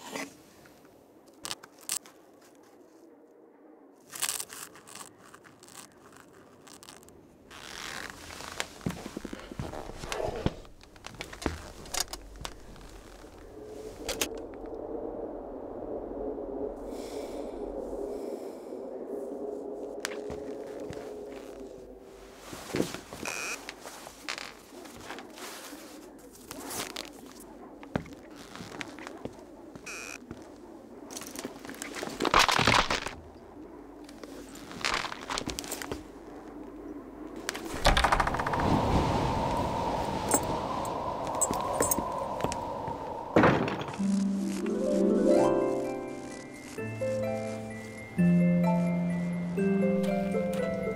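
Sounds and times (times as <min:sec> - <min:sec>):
clothing and bag rustling: 0:04.0 - 0:14.3, 0:20.1 - 0:30.5, 0:34.1 - 0:36.2, 0:40.2 - 0:50.3.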